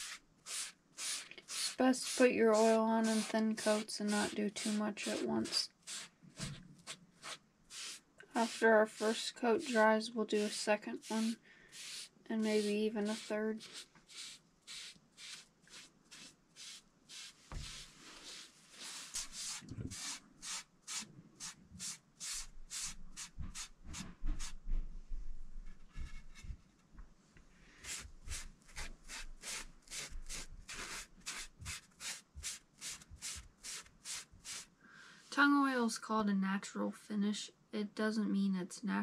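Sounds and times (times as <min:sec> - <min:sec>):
foam brush rubbing on wood: 0:00.0 - 0:24.6.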